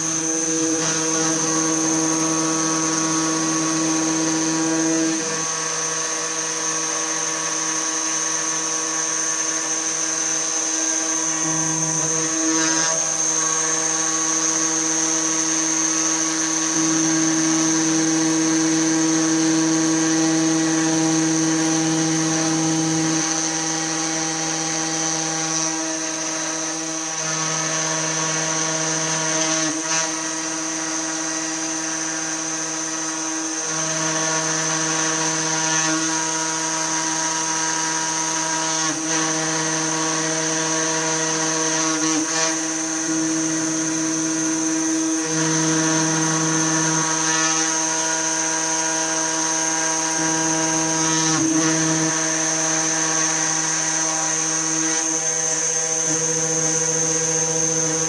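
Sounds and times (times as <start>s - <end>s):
bit engraving plywood: 0.0s - 58.0s
router spindle motor whine: 0.0s - 58.0s.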